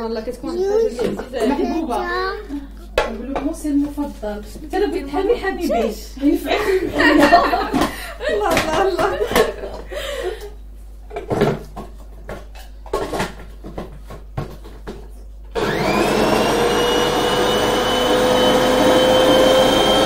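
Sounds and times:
pots knocking and clattering: 11.1 - 15.1
kitchen appliance motor whirring: 15.5 - 20.0.

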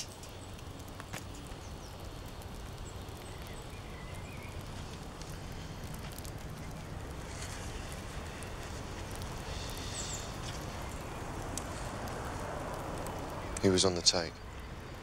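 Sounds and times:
faint bird chirps: 2.8 - 4.7, 9.4 - 11.0.

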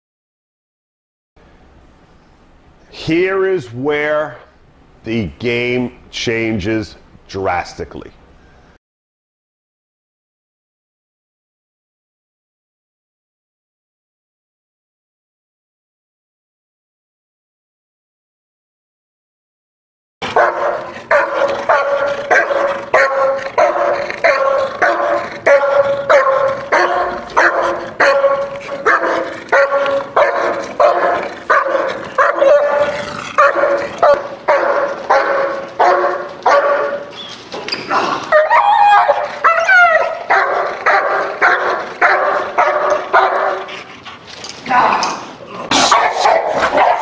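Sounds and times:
dog barking: 20.2 - 37.7, 38.3 - 43.8, 45.7 - 47.0
dog whining and yipping: 20.3 - 34.2, 36.5 - 41.7.

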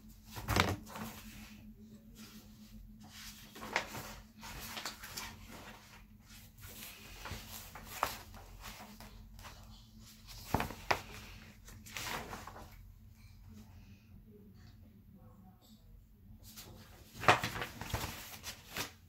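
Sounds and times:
soft rustling and handling: 0.0 - 14.0, 16.4 - 19.0.

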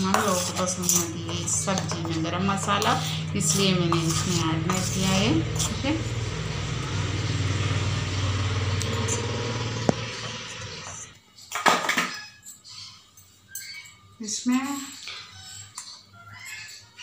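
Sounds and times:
low engine hum: 1.5 - 11.1.

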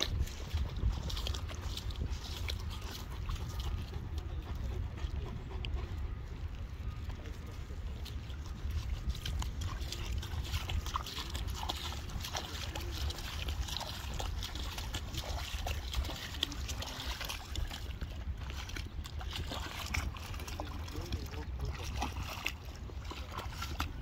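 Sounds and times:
dog splashing in water: 0.0 - 5.0, 8.0 - 24.0.

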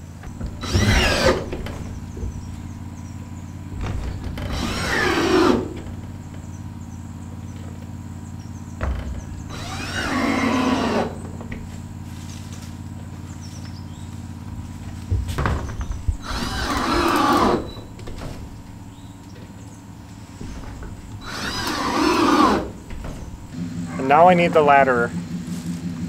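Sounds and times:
knocks: 0.2 - 6.6, 8.8 - 11.8, 14.9 - 19.6, 20.3 - 23.6
cordless drill driving screws: 0.4 - 1.9, 4.4 - 5.9, 9.5 - 11.2, 16.2 - 17.8, 21.2 - 22.7.

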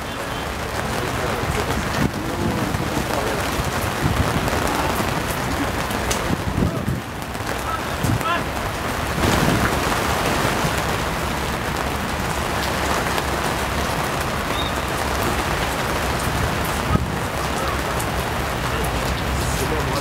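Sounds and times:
steady rain: 0.0 - 20.0.

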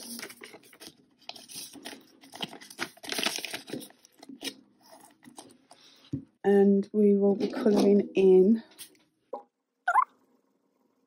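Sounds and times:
plastic and banknotes rustling: 0.0 - 5.6.

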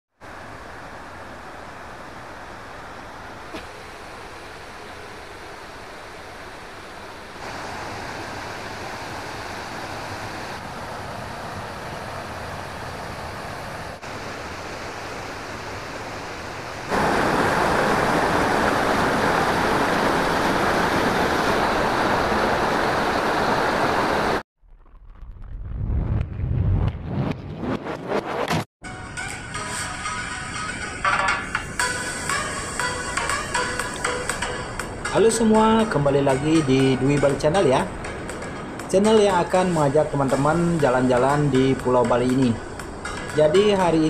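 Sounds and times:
waterfall rushing: 1.6 - 10.7, 13.0 - 24.4.

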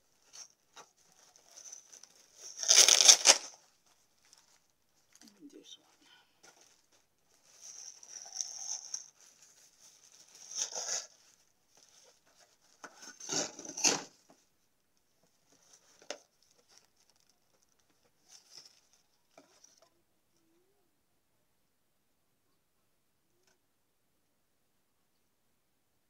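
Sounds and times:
packaging rustled and torn: 0.2 - 5.3, 6.4 - 14.2, 15.5 - 19.8.

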